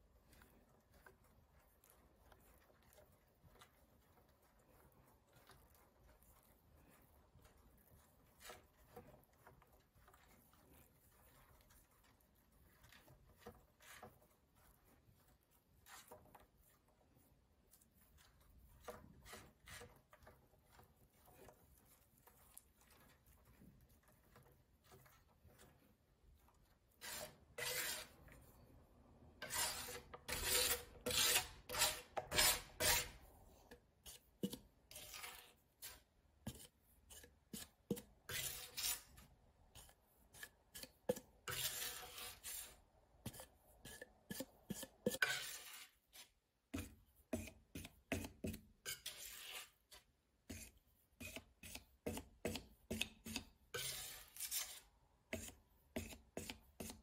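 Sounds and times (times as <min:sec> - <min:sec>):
metal knife scraping plastic bottle: 0:18.6 - 0:21.7, 0:26.9 - 0:28.4, 0:29.4 - 0:57.0.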